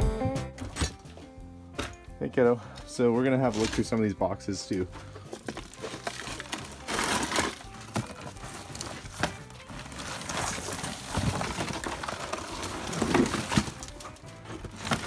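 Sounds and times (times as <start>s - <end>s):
faint background music: 0.0s - 15.0s
boxes knocking: 4.9s - 15.0s
cardboard flaps scraping and rustling: 5.3s - 15.0s.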